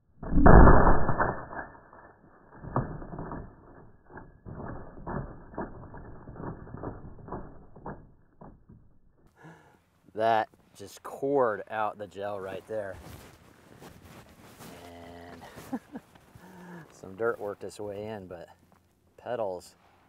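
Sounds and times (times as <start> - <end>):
slowed knocks and clatter: 0.2 - 9.4.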